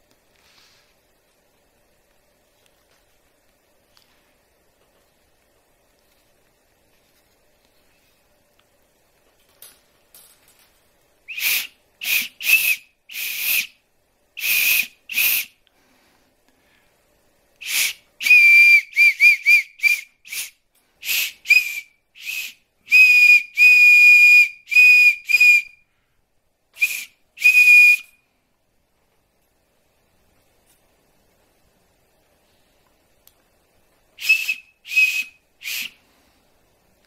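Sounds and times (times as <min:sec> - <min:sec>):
antler whistle blasts: 0:11.3 - 0:13.8, 0:14.4 - 0:15.6, 0:17.6 - 0:25.9, 0:26.8 - 0:28.2, 0:34.2 - 0:36.0.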